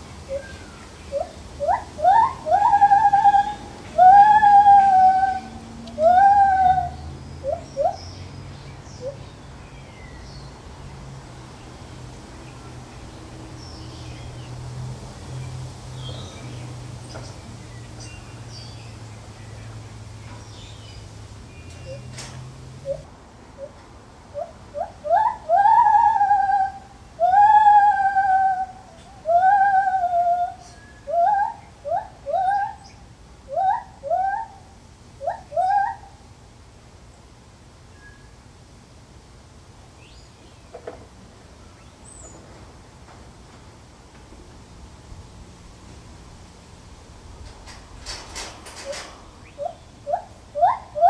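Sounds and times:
gibbon hooting: 0:01.1 - 0:08.0, 0:24.4 - 0:32.9, 0:33.5 - 0:34.6, 0:35.2 - 0:36.1, 0:49.6 - 0:51.0
gibbon rising whoops: 0:01.6 - 0:07.0, 0:25.1 - 0:32.8.

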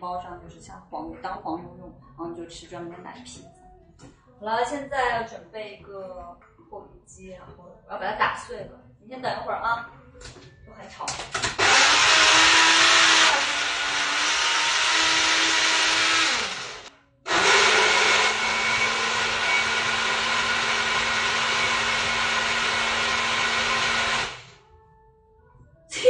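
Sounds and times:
blender running: 0:11.4 - 0:24.6.

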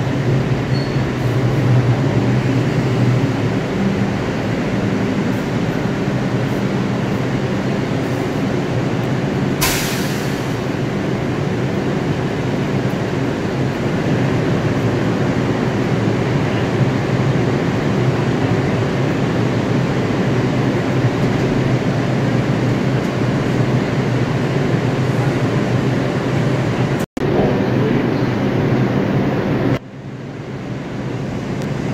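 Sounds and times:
train equipment humming: 0:00.0 - 0:31.9
air release hiss: 0:09.6 - 0:10.6.

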